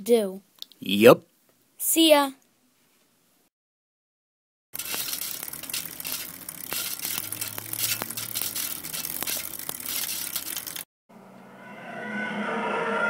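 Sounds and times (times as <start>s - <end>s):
low hum: 4.8s - 13.0s.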